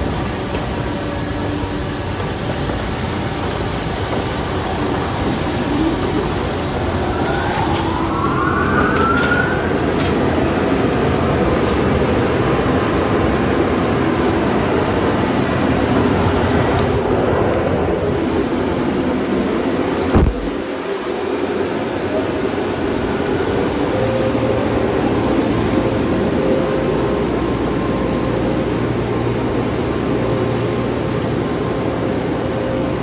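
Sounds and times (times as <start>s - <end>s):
rising machine whine: 5.6s - 11.5s.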